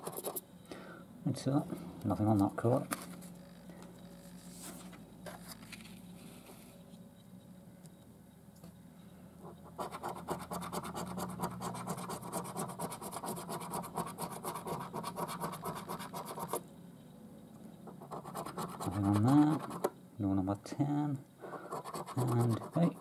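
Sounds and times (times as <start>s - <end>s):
coin scratching a scratch card: 0.0s - 0.4s, 9.4s - 16.6s, 17.8s - 19.9s, 21.6s - 23.0s.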